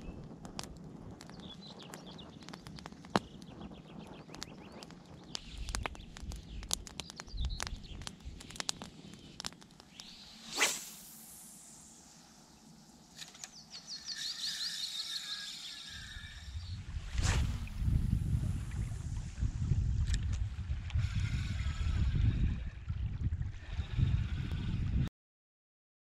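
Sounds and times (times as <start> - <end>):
fishing rod swish: 10.0 - 11.8, 17.0 - 18.1.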